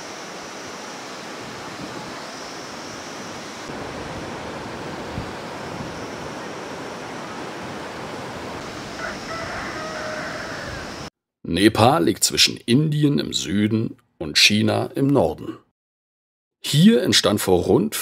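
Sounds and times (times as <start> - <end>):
waterfall rushing: 0.0 - 11.1.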